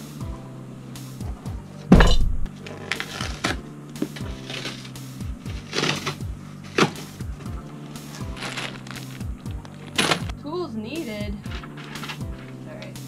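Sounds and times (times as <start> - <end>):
background music with beat: 0.0 - 2.5, 6.3 - 10.4
box thumping on floor: 1.9 - 2.5
cardboard flaps rustling: 2.5 - 10.4.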